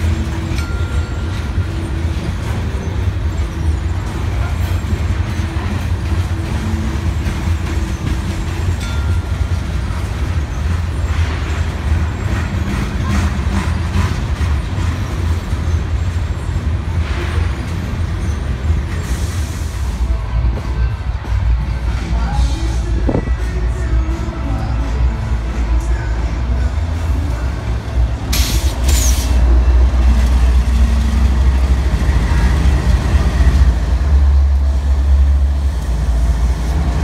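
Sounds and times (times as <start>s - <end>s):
sharp clicks from train wheels: 0.0s - 24.8s, 25.4s - 37.0s
diesel locomotives idling: 0.0s - 37.0s
freight cars rumbling over rails: 0.0s - 37.0s.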